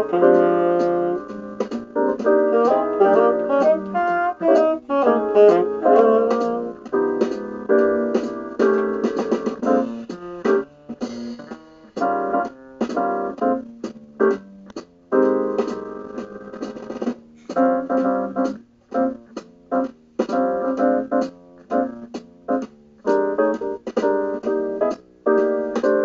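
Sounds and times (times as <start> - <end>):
bassoon playing blues: 0.0 - 1.4, 2.3 - 6.9
piano chord stabs: 0.0 - 14.5.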